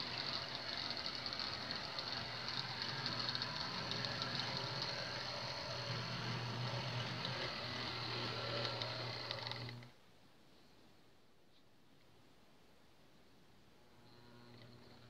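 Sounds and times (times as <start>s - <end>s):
wheels clicking on track: 0.0s - 9.9s
model train motor hum: 0.0s - 10.0s, 14.0s - 15.0s.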